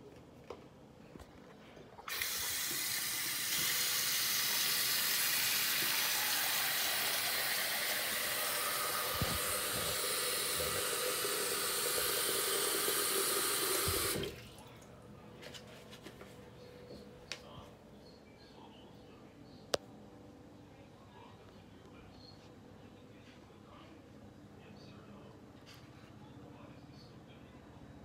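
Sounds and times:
tap running into tub: 2.0 - 14.4.

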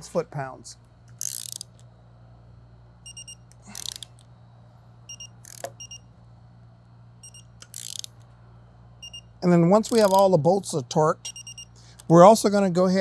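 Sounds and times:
steady low hum: 0.0 - 13.0
wrench rasping: 1.1 - 1.8, 3.6 - 4.2, 7.6 - 8.2, 9.8 - 10.3.

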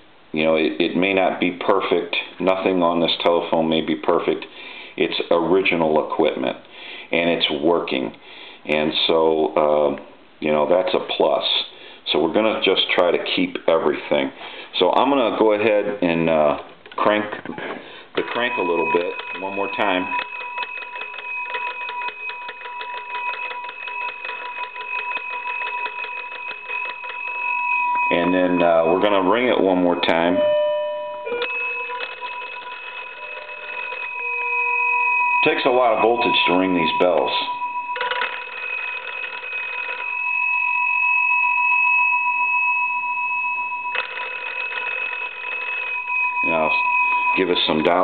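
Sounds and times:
telephone bells ringing: 18.2 - 48.0.

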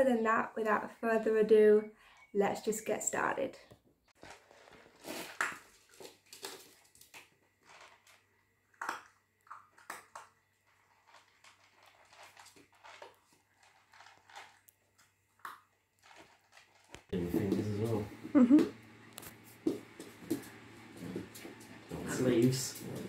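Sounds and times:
puppy crunching food: 4.2 - 18.0.

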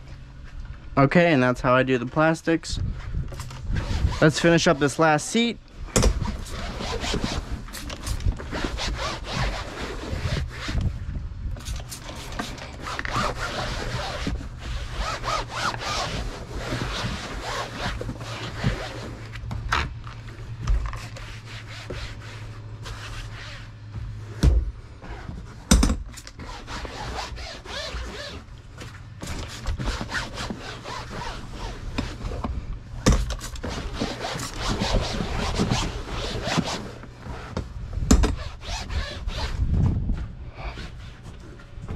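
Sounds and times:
towel rubbing vinyl seat: 3.6 - 4.9, 6.1 - 10.9, 11.6 - 19.4, 20.9 - 24.4, 26.4 - 28.5, 29.2 - 32.4, 33.4 - 37.6, 38.3 - 39.6.

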